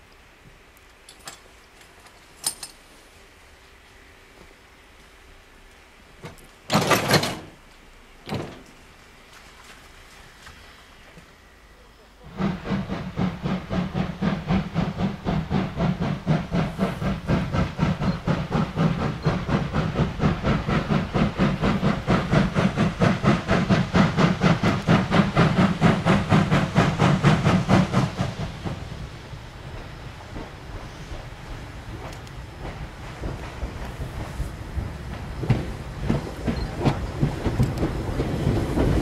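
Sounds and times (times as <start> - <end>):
locomotive rumble: 9.9 - 39.0
steam hissing: 10.1 - 39.0
steam locomotive chuffing: 10.6 - 39.0.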